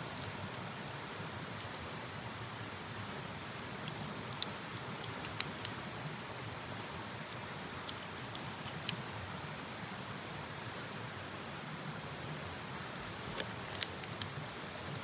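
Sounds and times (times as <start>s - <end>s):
steady hiss: 0.0s - 15.0s
prawn shell cracking: 3.9s - 5.8s, 13.7s - 15.0s.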